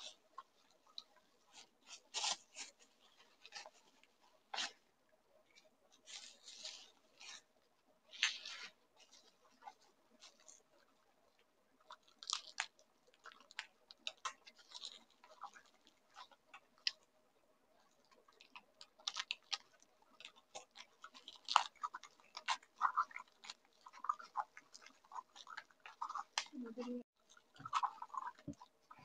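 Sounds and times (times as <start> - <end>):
bubble wrap crackling: 0.0 - 17.1, 17.8 - 29.0.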